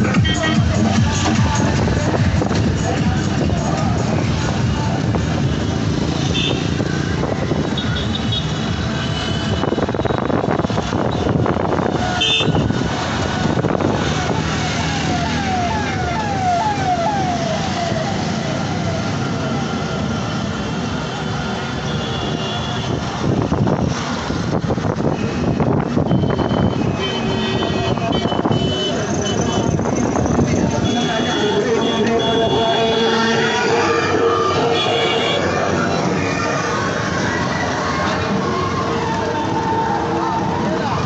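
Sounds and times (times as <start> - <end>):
traffic engine and road noise: 0.0 - 41.0
siren-like sweeping tone: 13.9 - 20.4, 32.4 - 41.0.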